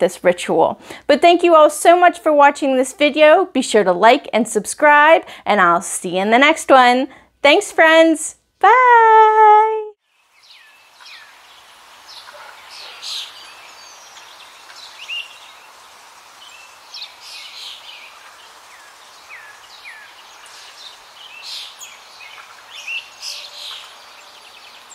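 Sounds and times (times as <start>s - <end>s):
steady background hiss: 10.0s - 24.9s
birds chirping and whistling: 10.4s - 11.4s, 16.4s - 24.9s.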